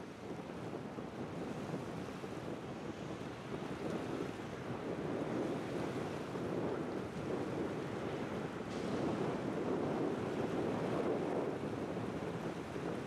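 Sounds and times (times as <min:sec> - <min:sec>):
jet engines roaring at takeoff: 0:08.5 - 0:13.0.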